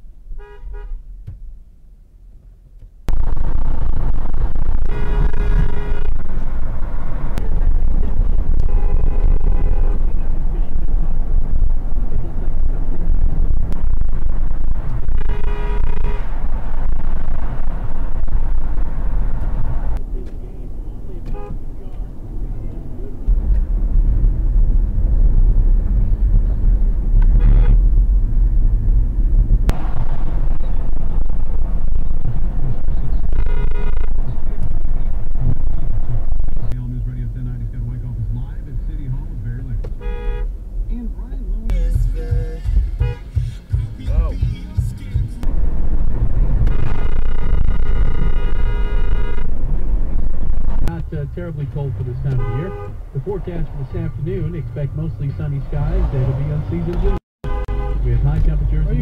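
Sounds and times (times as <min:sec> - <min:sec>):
car road and engine noise: 0:00.0 - 0:59.0
car horn honks: 0:00.4 - 0:01.1, 0:04.5 - 0:06.6, 0:07.3 - 0:10.8, 0:14.8 - 0:16.8, 0:21.2 - 0:21.8, 0:27.2 - 0:27.9, 0:32.9 - 0:34.9, 0:39.8 - 0:40.6, 0:41.7 - 0:45.5, 0:46.6 - 0:49.7, 0:50.8 - 0:54.1, 0:56.9 - 0:59.0.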